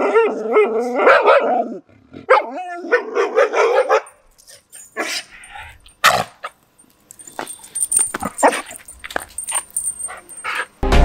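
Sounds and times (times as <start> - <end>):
dog barking: 1.0 - 1.6, 2.3 - 4.2.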